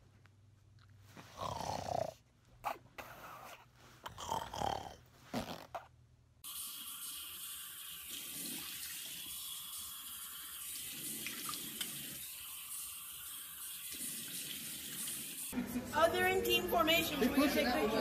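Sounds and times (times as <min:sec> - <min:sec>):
dog snuffling and snorting: 0:00.9 - 0:05.9
tap water running into sink: 0:06.5 - 0:15.5.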